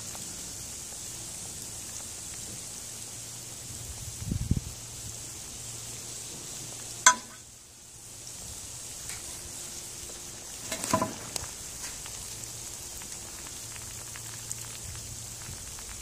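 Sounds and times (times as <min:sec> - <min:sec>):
fish sizzling in hot oil: 0:00.0 - 0:16.0
metal utensil clinking on pot: 0:07.1 - 0:07.4.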